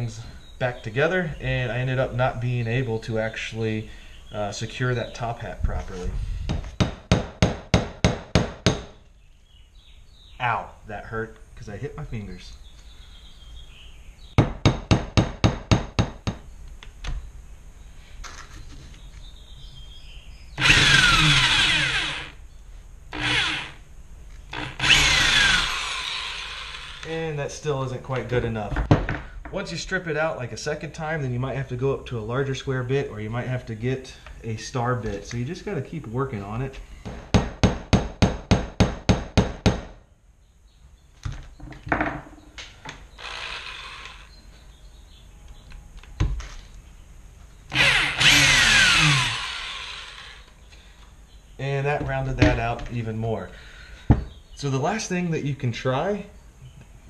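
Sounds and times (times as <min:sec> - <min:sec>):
electric drill bursts: 0:20.6 - 0:22.4, 0:23.1 - 0:23.8, 0:24.5 - 0:27.1, 0:43.2 - 0:44.4, 0:47.7 - 0:50.6.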